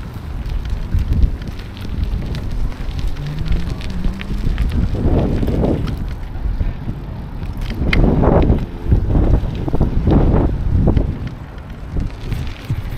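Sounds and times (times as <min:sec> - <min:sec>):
tyres rolling on gravel: 0:00.0 - 0:12.9
wind buffeting microphone: 0:00.0 - 0:12.9.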